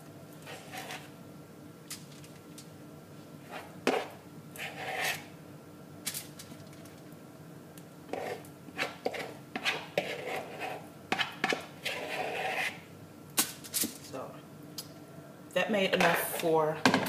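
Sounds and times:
spoon scraping mixing bowl: 0.4s - 1.1s, 3.4s - 5.3s, 8.1s - 12.8s, 16.0s - 16.5s.

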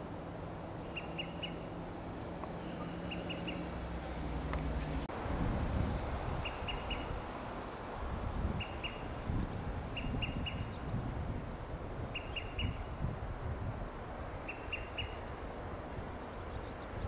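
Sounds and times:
bird calling sharp pips: 0.9s - 1.7s.

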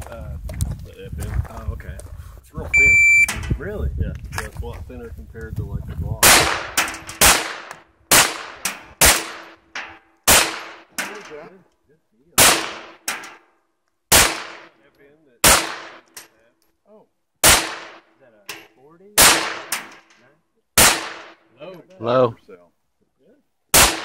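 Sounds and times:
pistol shots: 6.2s - 11.0s, 12.4s - 13.1s, 14.1s - 14.8s, 15.4s - 16.2s, 17.4s - 18.1s, 19.2s - 19.9s, 20.8s - 21.4s, 23.7s - 24.0s.

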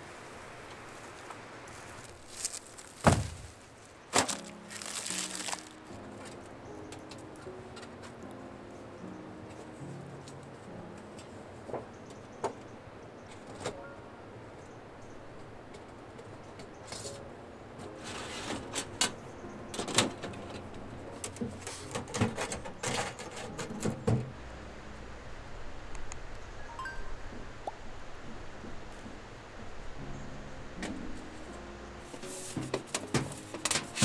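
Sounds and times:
sheet-metal panels clanking: 21.2s - 24.3s.

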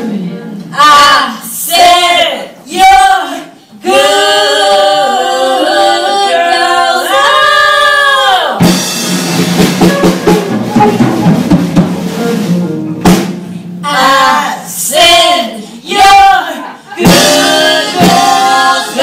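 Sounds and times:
women singing together: 0.6s - 8.6s, 13.8s - 19.0s
drum kit hits: 8.6s - 13.9s, 17.0s - 19.0s.

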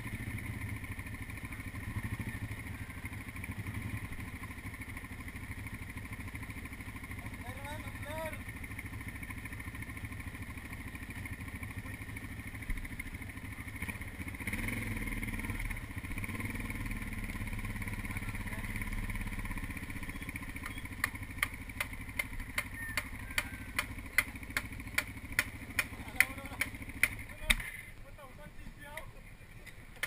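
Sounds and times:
dirt bike engine idling: 0.0s - 30.0s
sharp regular clicking: 20.6s - 27.6s.

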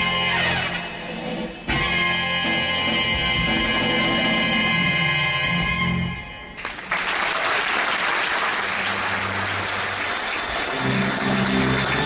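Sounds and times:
audience applauding: 6.6s - 12.0s
held low music notes: 10.6s - 12.0s.

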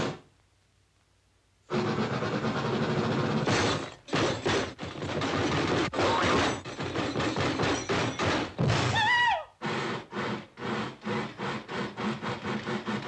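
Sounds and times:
carriages clanking and banging: 1.9s - 8.9s.

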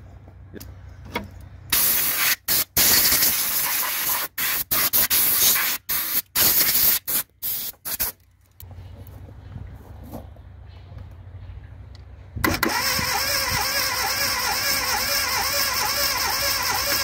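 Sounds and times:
aerosol spray can hissing: 1.8s - 8.2s.

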